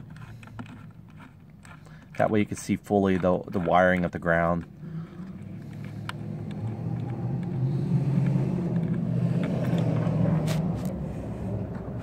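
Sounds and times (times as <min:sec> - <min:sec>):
vehicle engine passing by: 0:04.8 - 0:12.0.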